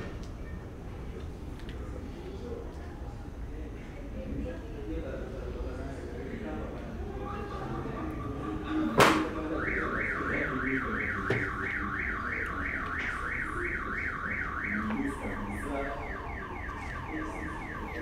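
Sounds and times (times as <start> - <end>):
electronic alarm siren warbling: 9.5 - 18.0.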